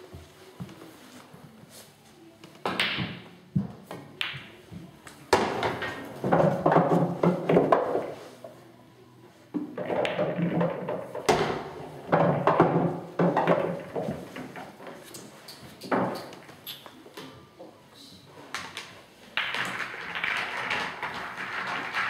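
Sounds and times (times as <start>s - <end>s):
pool balls rolling and clicking: 2.5s - 8.6s, 9.4s - 17.2s, 18.5s - 22.0s.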